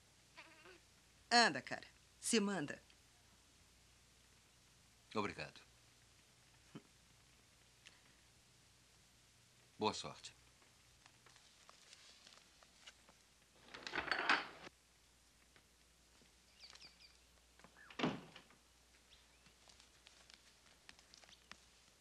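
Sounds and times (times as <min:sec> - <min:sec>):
door shutting thump: 0:17.9 - 0:18.5.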